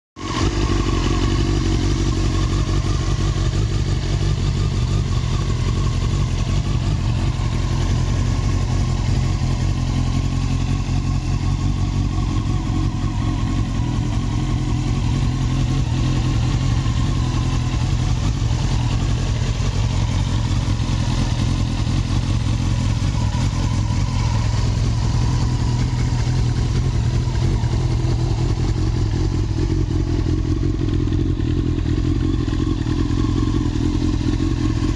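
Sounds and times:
motorcycle engine idling: 0:00.2 - 0:34.9.

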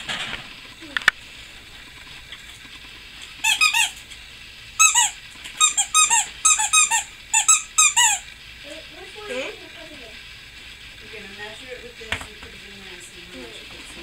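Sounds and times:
squeaky dog toy squeaking: 0:03.4 - 0:04.0, 0:04.8 - 0:08.2.

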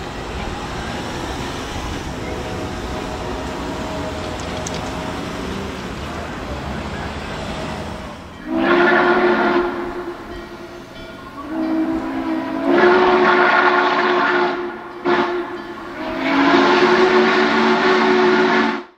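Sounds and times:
locomotive air horn blasts: 0:01.8 - 0:06.4, 0:08.4 - 0:18.9.

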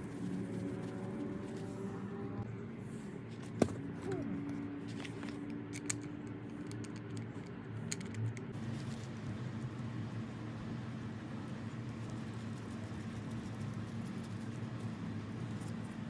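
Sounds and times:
steady low hum: 0:00.0 - 0:16.0
metallic clicks and clinks: 0:05.4 - 0:08.6.

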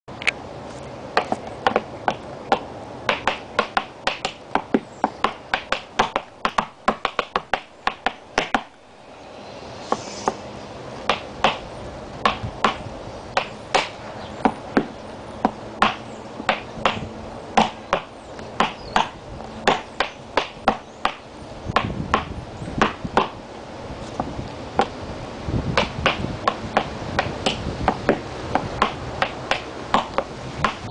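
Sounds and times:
tap shoes clicking on wood: 0:01.2 - 0:08.8, 0:11.0 - 0:12.8, 0:13.4 - 0:21.2, 0:21.8 - 0:23.4, 0:24.1 - 0:25.0, 0:25.8 - 0:30.9.

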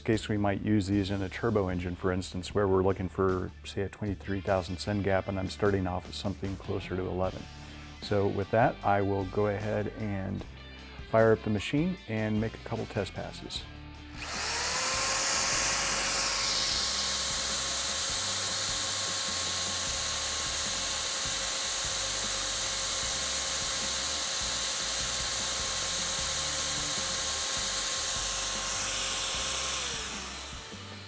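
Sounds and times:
electric drill whining: 0:14.1 - 0:31.0
piston ring grinding on wheel: 0:14.2 - 0:31.0.

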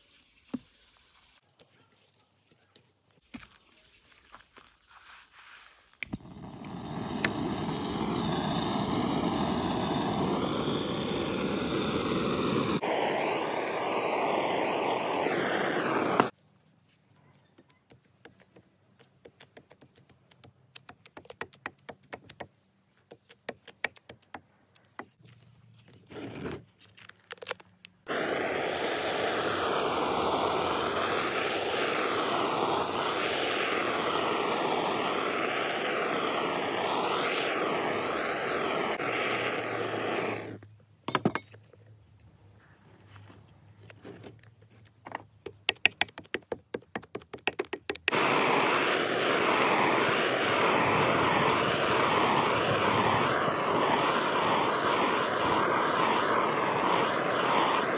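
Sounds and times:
torch ignition click: 0:06.0 - 0:16.3
gas torch hissing: 0:06.0 - 0:16.4, 0:28.0 - 0:40.7, 0:48.0 - 0:57.9.

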